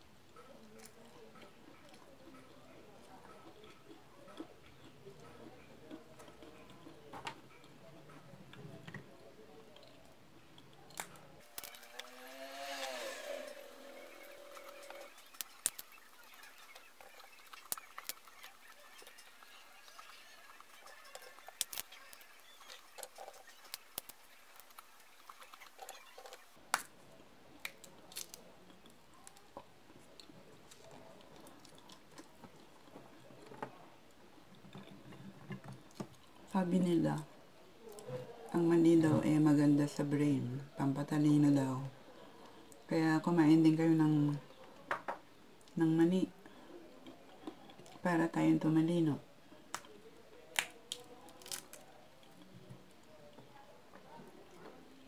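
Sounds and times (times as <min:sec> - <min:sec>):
peanuts being chewed: 0:00.2 - 0:40.3, 0:45.6 - 0:55.0
peanut shells cracking: 0:09.8 - 0:33.0, 0:49.6 - 0:53.1.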